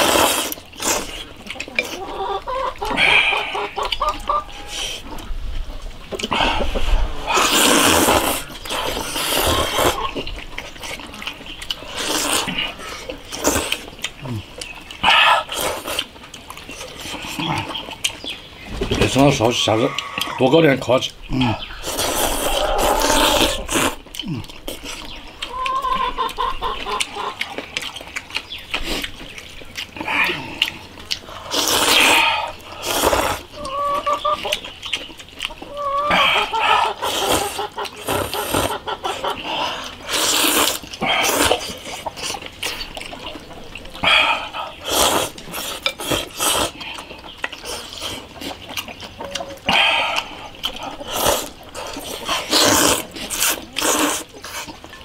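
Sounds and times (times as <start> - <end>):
slurping noodles: 0.0 - 2.0, 6.2 - 10.2, 11.7 - 14.4, 21.4 - 25.1, 30.0 - 33.5, 36.1 - 38.8, 39.4 - 42.9, 44.0 - 47.0, 49.7 - 54.8
chewing: 0.0 - 55.0.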